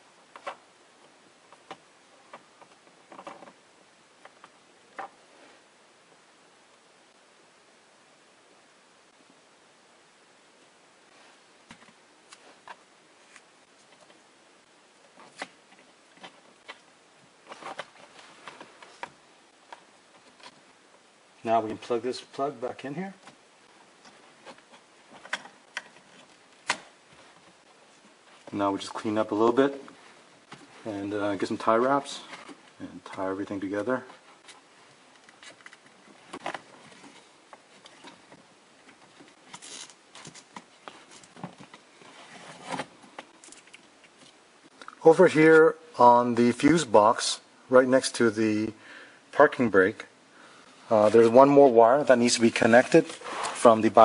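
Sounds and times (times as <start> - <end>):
wiring rustling: 11.6 - 45.7.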